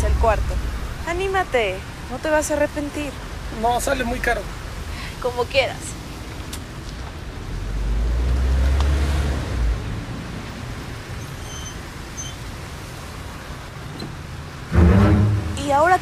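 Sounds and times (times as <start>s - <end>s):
low hum of traffic: 0.0s - 16.0s
car driving by: 14.7s - 15.8s.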